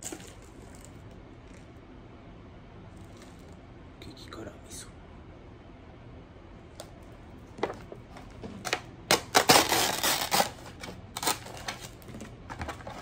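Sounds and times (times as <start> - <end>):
plastic wrapping crinkling and tearing: 8.6 - 13.0.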